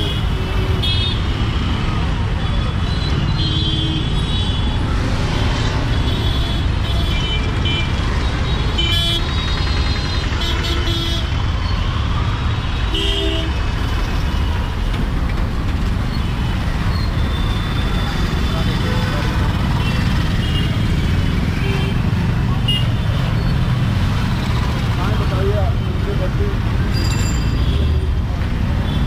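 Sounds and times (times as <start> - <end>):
vehicle engines running: 13.5 - 29.0.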